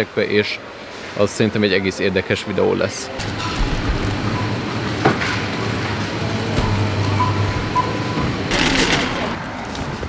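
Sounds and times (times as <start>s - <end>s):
steady low hum: 3.1s - 9.4s
rattling noise: 3.2s - 9.5s
short beeps: 6.6s - 8.4s.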